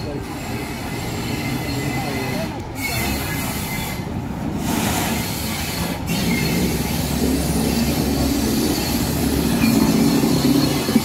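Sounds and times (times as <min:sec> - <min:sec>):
diesel locomotive engine: 0:00.0 - 0:11.0
train wheel rumble: 0:00.0 - 0:11.0.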